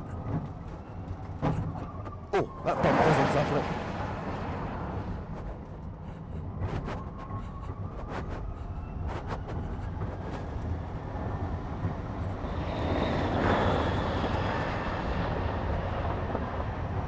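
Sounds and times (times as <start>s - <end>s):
tyre and wind noise: 3.8s - 17.0s.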